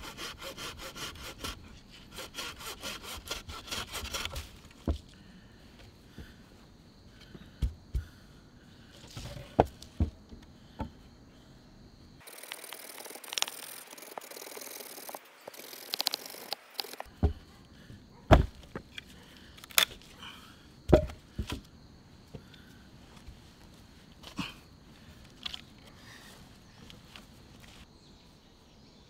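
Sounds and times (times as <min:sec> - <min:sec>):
hand saw rasping: 0:00.0 - 0:04.6, 0:12.2 - 0:17.1
wooden knocks of logs: 0:04.2 - 0:05.1, 0:07.2 - 0:08.1, 0:09.0 - 0:11.0, 0:17.0 - 0:17.5, 0:18.3 - 0:19.0, 0:20.9 - 0:21.7.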